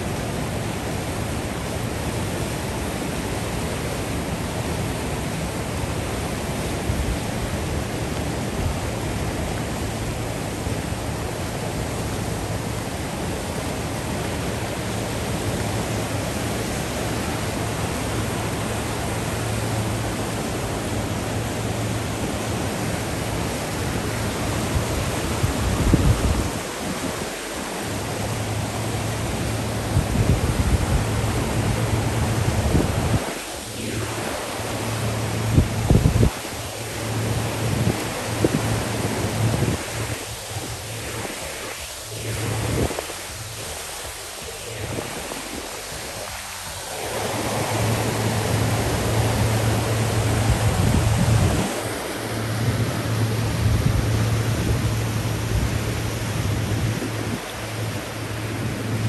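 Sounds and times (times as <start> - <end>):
water rushing over rocks: 0.0 - 59.0
low rumble: 47.0 - 59.0.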